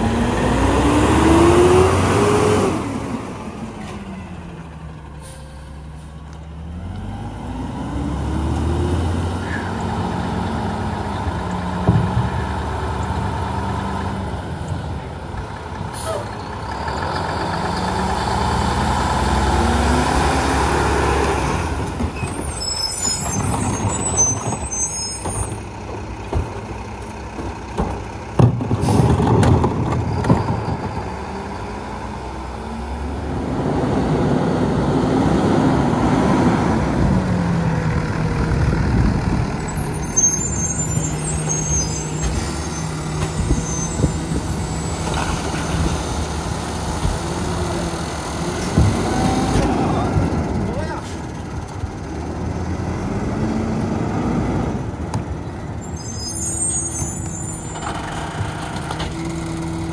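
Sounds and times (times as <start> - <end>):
garbage truck diesel engine revving: 0.0 - 3.8, 6.5 - 22.1, 30.9 - 55.2.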